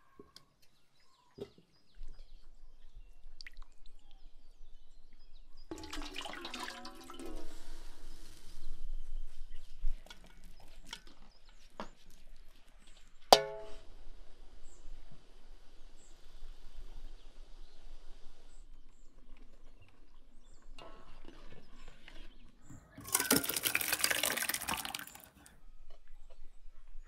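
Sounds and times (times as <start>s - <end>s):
drips and small splashes: 3.2s - 4.4s, 5.7s - 8.0s, 22.8s - 25.5s
water pouring into metal bowl: 5.7s - 8.4s, 22.9s - 25.5s.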